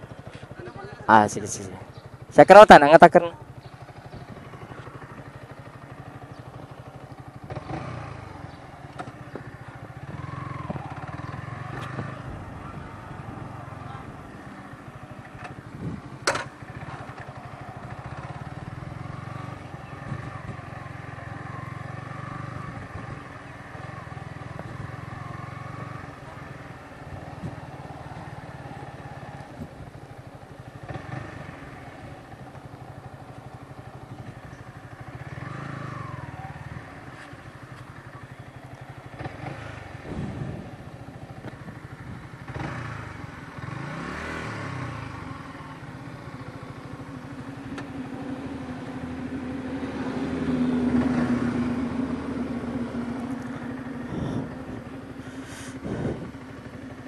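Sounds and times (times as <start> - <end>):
motorcycle engine running slowly: 0.0 - 57.0.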